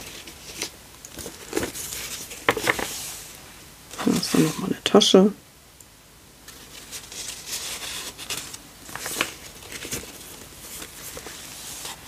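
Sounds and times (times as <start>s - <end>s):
paper rustling and crackling: 0.0s - 3.3s, 6.4s - 12.0s.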